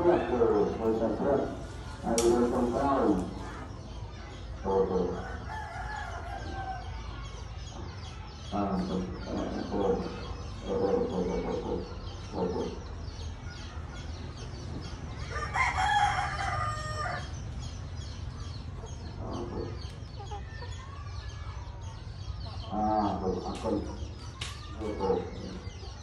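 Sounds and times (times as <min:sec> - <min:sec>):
chickens clucking: 0:00.0 - 0:26.0
rooster crowing: 0:15.3 - 0:17.3.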